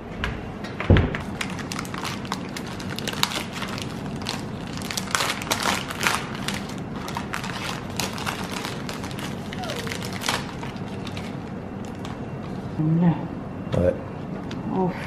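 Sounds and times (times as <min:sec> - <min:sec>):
foil wrapper crinkling: 0:01.2 - 0:12.5.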